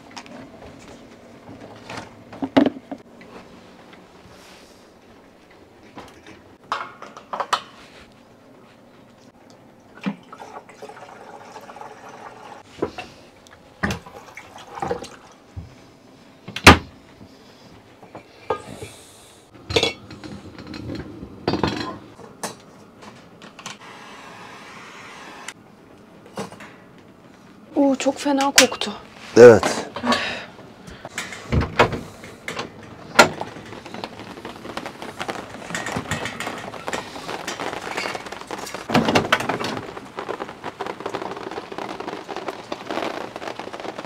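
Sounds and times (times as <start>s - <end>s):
plates and containers clattering: 19.6s - 22.6s.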